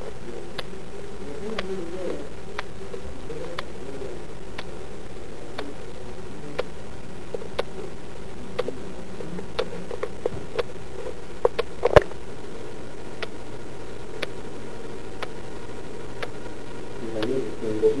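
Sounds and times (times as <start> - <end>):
steady hiss: 0.0 - 18.0
watch ticking: 4.5 - 4.7, 7.3 - 7.7.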